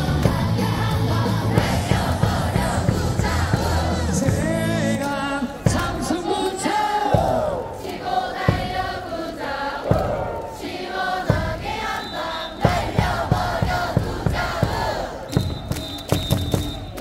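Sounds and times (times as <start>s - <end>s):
music over loudspeakers: 0.0s - 7.8s
crowd chanting: 0.0s - 15.6s
crowd singing in unison: 0.0s - 15.6s.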